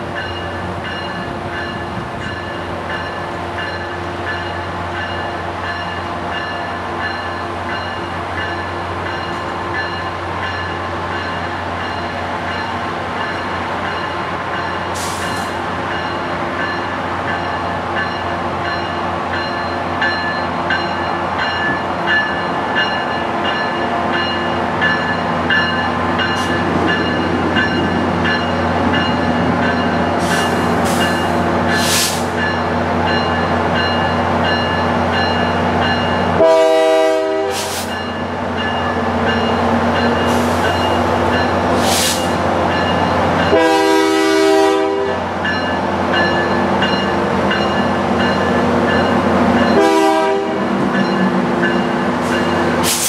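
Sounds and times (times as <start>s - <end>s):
brief hisses: 15.0s - 15.5s.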